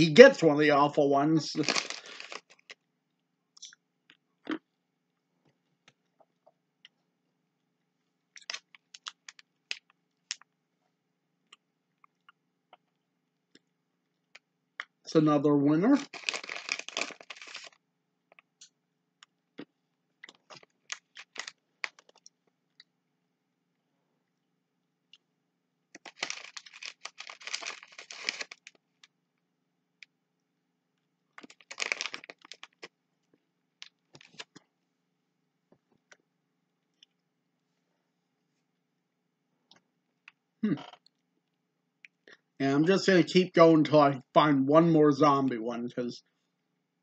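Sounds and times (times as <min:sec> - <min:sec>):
plastic bag crinkling: 0:01.5 - 0:02.8, 0:16.0 - 0:17.8, 0:20.3 - 0:22.3, 0:26.0 - 0:28.8, 0:31.4 - 0:32.9, 0:34.1 - 0:34.6.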